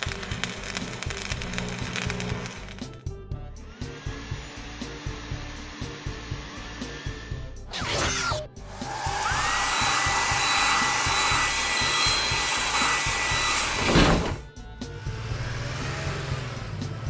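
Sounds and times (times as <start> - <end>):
whirring hiss with rising whine: 8.6 - 11.6.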